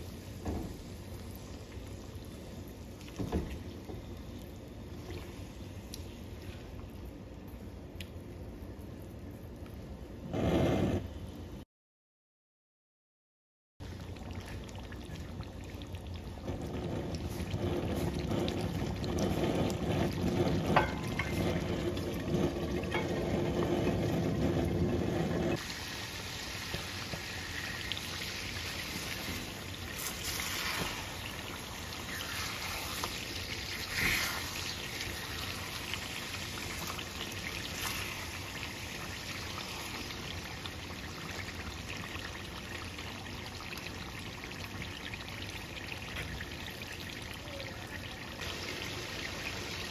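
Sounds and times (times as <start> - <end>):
curry bubbling in a pan: 13.8 - 49.9.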